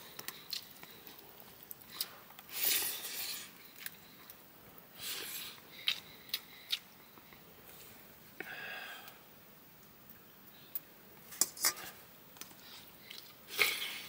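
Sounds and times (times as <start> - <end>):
kitchen utensils scraping: 11.3 - 12.0.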